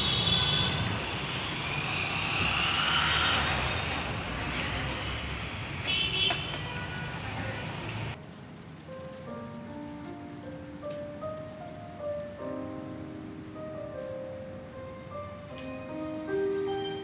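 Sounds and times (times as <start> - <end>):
motor vehicle passing: 0.0 - 8.2
street traffic noise: 0.0 - 12.4, 13.2 - 17.0.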